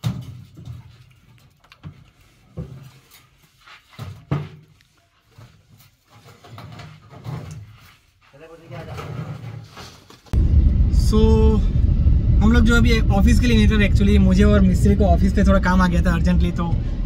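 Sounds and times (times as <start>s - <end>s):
irregular knocks and thuds: 0.0s - 1.1s.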